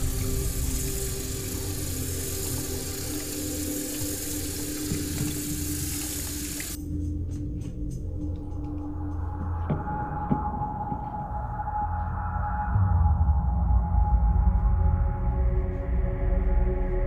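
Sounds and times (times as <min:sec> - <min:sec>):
tap water running into sink: 0:00.0 - 0:06.8
droning music: 0:00.0 - 0:17.0.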